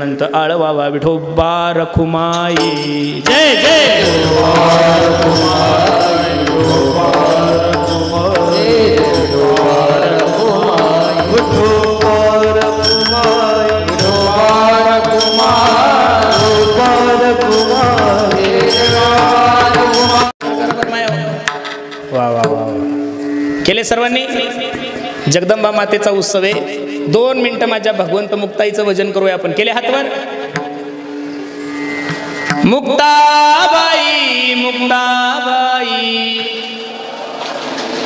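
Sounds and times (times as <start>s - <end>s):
devotional singing: 0.0s - 21.2s, 32.6s - 38.0s
instrumental accompaniment: 2.1s - 38.0s
tabla drumming: 2.3s - 28.6s, 29.5s - 34.6s.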